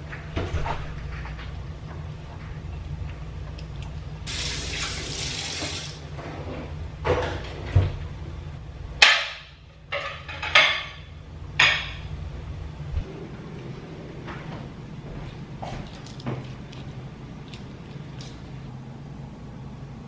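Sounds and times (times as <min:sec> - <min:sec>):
kitchen tap running: 0:04.3 - 0:06.0
kitchen clatters and knocks: 0:06.1 - 0:08.0, 0:09.0 - 0:12.1
low hum: 0:11.0 - 0:20.0.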